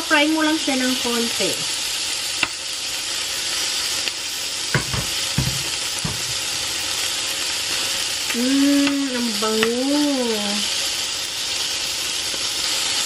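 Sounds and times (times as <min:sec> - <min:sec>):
chicken sizzling in frying pan: 0:00.0 - 0:13.0
metal spoon knocking against pan: 0:04.8 - 0:06.5.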